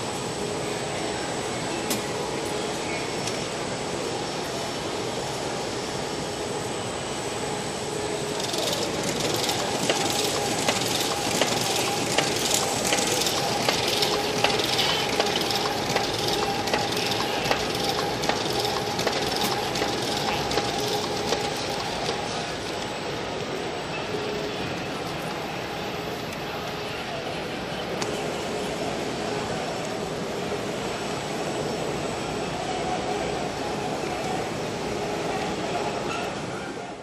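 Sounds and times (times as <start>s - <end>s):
machine hum: 0.0s - 35.8s
fast irregular clicking of machine parts: 8.4s - 22.9s.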